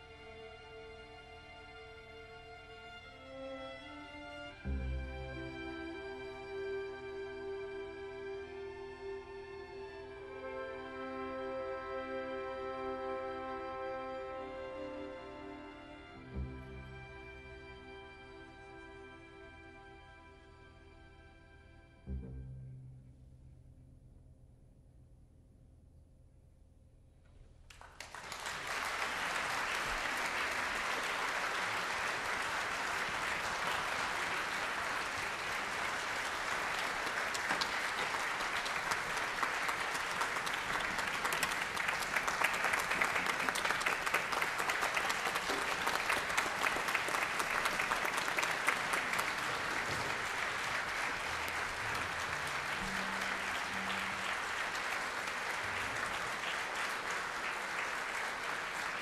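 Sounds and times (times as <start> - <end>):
audience applauding: 27.7 - 59.0.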